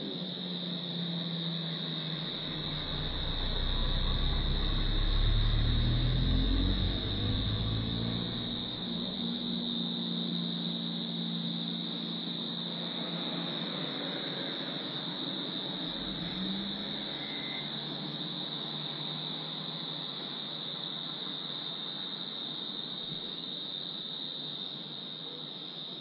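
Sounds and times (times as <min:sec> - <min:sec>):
low distant drone: 0:00.0 - 0:14.6
crickets chirping: 0:00.0 - 0:26.0.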